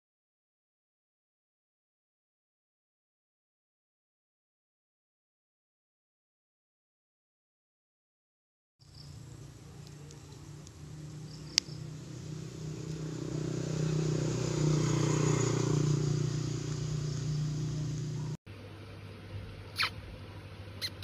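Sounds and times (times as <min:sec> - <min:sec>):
low engine hum: 0:08.8 - 0:21.0.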